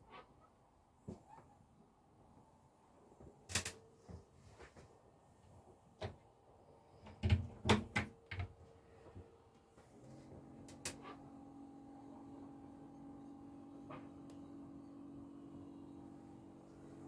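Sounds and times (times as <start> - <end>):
knocks and clicks of handling: 7.0 - 8.6
steady low hum: 8.7 - 17.0.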